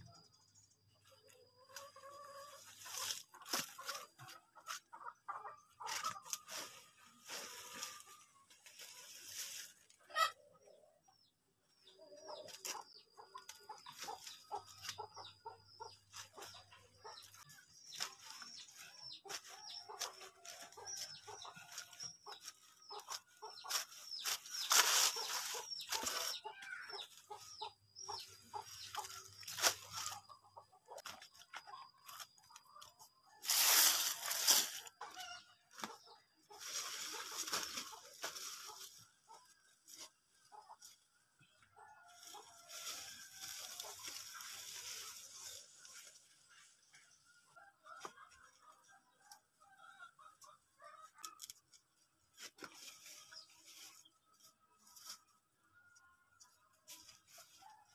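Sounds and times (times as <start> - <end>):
chickens clucking: 0.0 - 57.9
dry leaves rustling and crackling: 1.9 - 4.3, 5.8 - 10.2, 16.1 - 30.3, 33.4 - 40.1, 42.1 - 46.5, 52.3 - 55.2.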